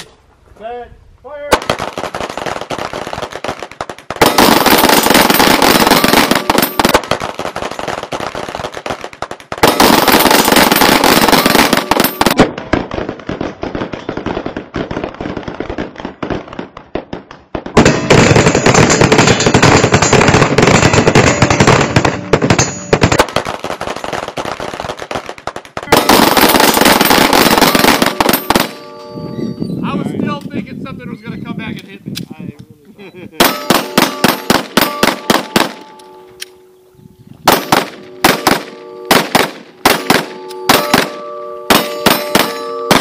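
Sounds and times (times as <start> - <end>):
handguns firing rapidly: 33.4 - 35.9, 37.5 - 43.0.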